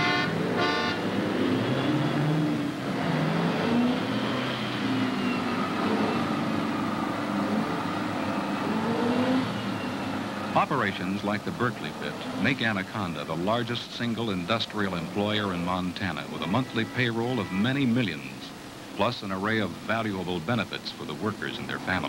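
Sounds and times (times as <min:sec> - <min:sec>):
horn blasts: 0:00.0 - 0:01.9, 0:16.1 - 0:18.4
faint high whine: 0:09.5 - 0:22.0.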